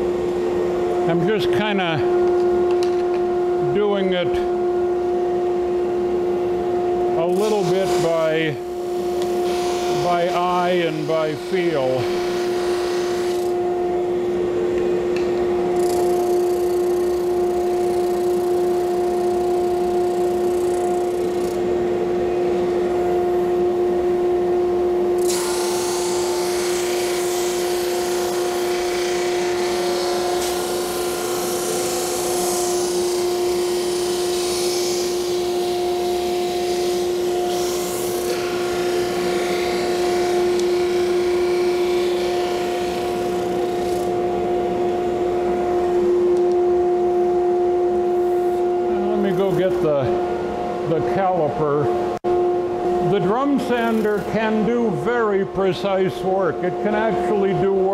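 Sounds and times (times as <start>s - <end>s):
drum sander motor hum: 0.0s - 57.9s
hiss of wood being sanded: 25.4s - 35.4s.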